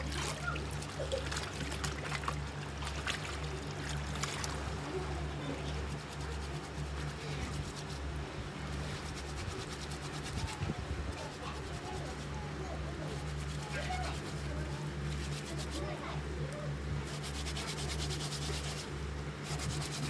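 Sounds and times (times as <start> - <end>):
fabric swished in water: 0.0 - 4.8
water splashing and trickling: 0.0 - 7.8
steady low hum: 0.0 - 20.0.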